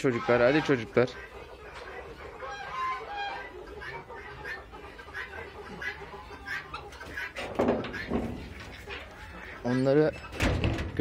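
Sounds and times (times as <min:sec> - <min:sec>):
chickens clucking softly: 0:00.0 - 0:11.0.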